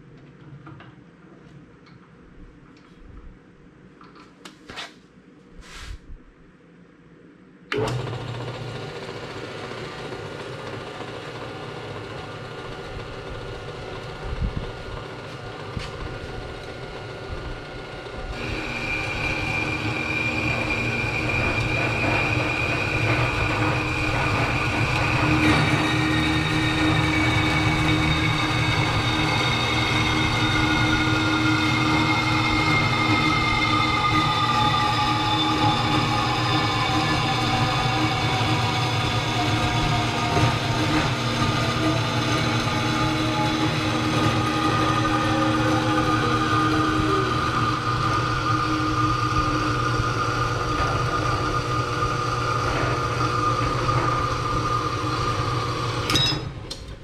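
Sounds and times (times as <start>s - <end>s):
bandsaw running: 7.8s - 56.3s.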